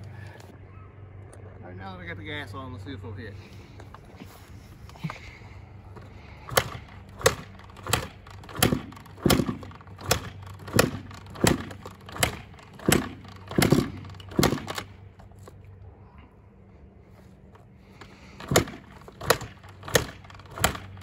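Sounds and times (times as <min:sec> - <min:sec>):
dirt bike kickstarter thuds: 0:05.9 - 0:14.9, 0:18.0 - 0:21.0.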